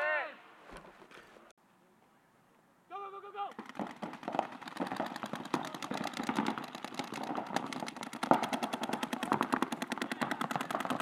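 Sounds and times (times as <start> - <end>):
paintball markers firing rapidly: 3.5 - 11.0.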